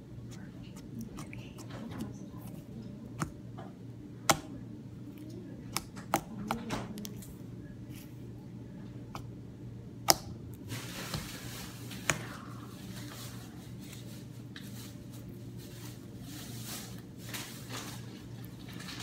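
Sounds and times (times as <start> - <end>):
slime squishing: 0.0 - 9.4, 10.0 - 19.0.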